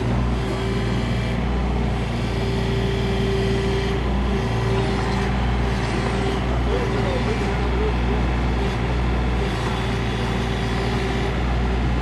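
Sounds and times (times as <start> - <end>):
excavator engine running: 0.0 - 12.0.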